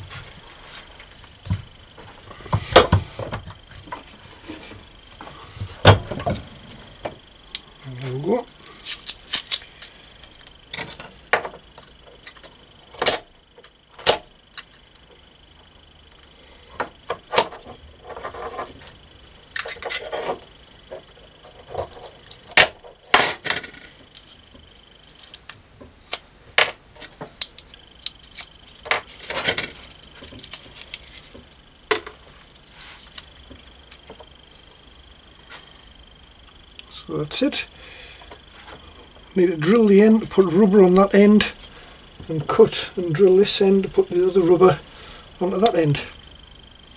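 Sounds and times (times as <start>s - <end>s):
metal parts clinking on wood: 22.2s - 24.4s, 26.6s - 31.3s.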